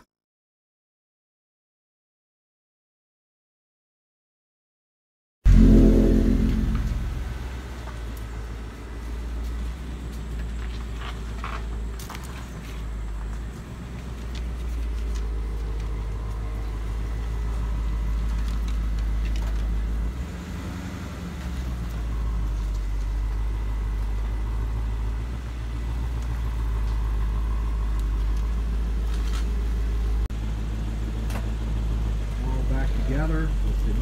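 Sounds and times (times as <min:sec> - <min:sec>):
car engine idling: 0:12.6 - 0:20.3, 0:21.7 - 0:34.0.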